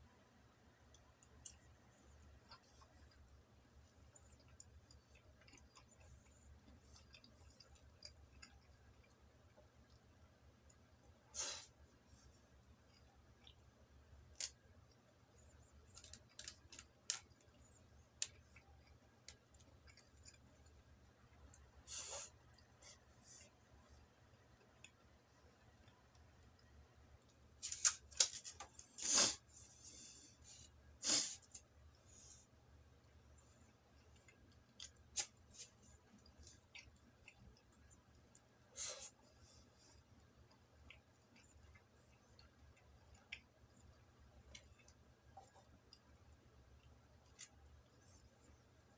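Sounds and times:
chewing clicks and smacks: 0:04.0 - 0:11.0, 0:12.8 - 0:13.7, 0:14.3 - 0:21.7, 0:33.7 - 0:38.5, 0:40.0 - 0:46.2.

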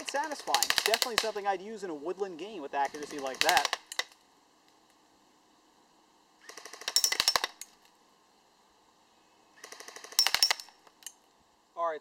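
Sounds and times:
airsoft gun full-auto bursts: 0:00.0 - 0:01.4, 0:02.9 - 0:04.0, 0:06.4 - 0:07.6, 0:09.6 - 0:10.7.

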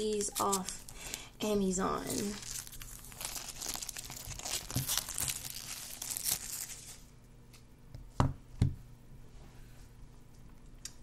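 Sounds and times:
plastic wrap crinkling: 0:00.0 - 0:07.1.

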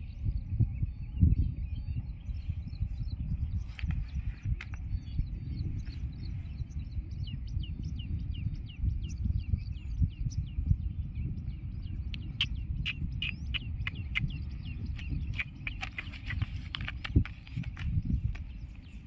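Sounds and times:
bird chirping: 0:00.0 - 0:19.0
wind rumbling on microphone: 0:00.0 - 0:19.0
sharp clicks: 0:15.0 - 0:18.5.

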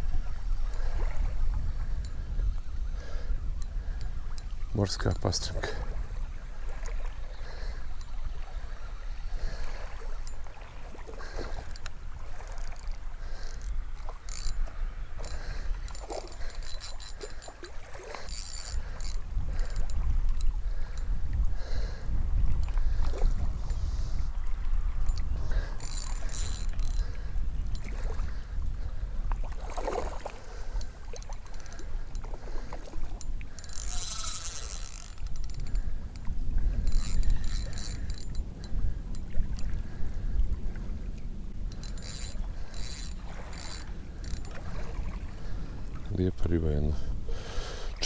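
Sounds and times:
wind rumble on microphone: 0:00.0 - 0:48.0
spinning reel cranking: 0:12.6 - 0:17.6, 0:18.2 - 0:20.0, 0:25.6 - 0:27.1, 0:33.5 - 0:36.0, 0:36.7 - 0:39.2, 0:41.7 - 0:44.6.

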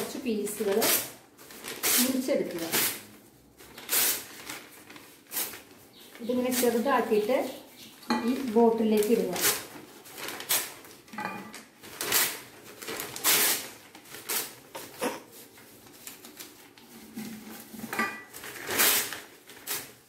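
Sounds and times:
newspaper crackling and rustling: 0:00.0 - 0:20.0.

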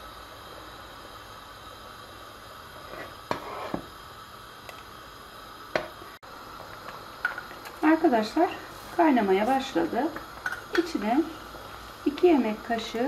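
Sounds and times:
steady low hiss: 0:00.0 - 0:13.0
ladle scraping pot: 0:02.8 - 0:03.9.

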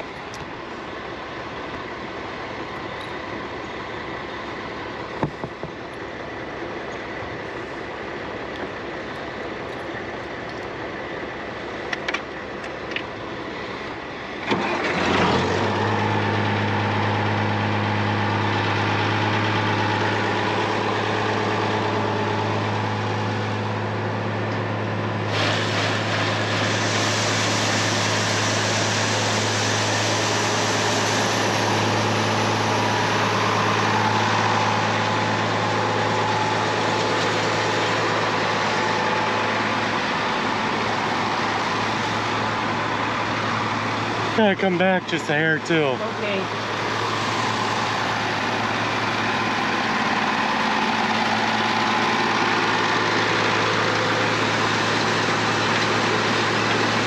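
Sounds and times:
diesel tractor engine idling: 0:00.0 - 0:57.0.

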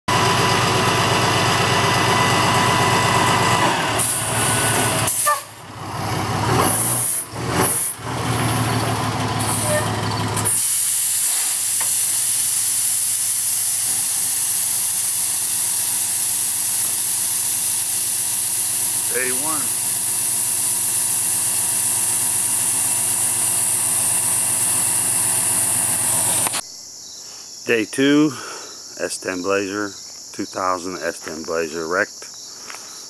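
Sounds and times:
tow truck engine running: 0:00.1 - 0:26.6
steady hiss: 0:10.5 - 0:26.6.

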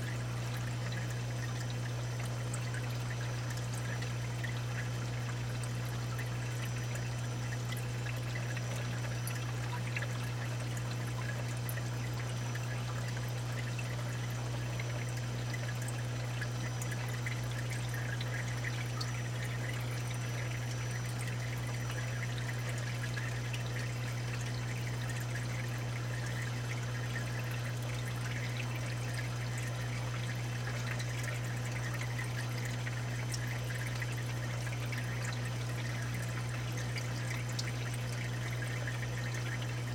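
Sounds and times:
water trickling and pouring: 0:00.0 - 0:39.9.

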